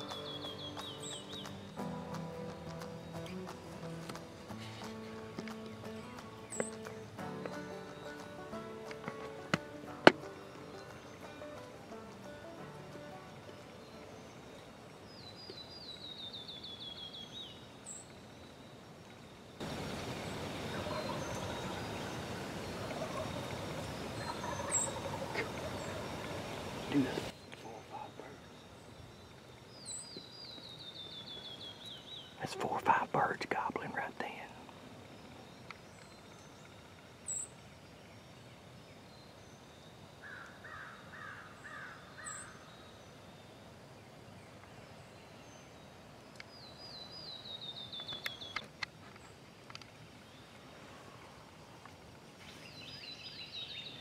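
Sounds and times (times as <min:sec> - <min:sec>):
steady background hiss: 0:00.0 - 0:54.0
wild birds calling: 0:00.0 - 0:54.0
distant turkeys gobbling: 0:19.6 - 0:27.3.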